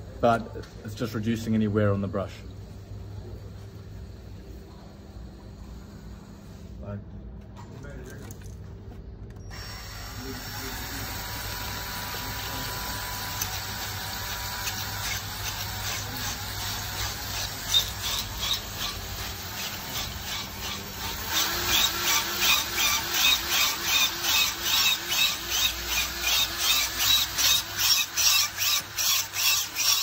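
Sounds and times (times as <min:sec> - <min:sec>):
battery drill spinning tube brush: 0:09.5 - 0:30.0.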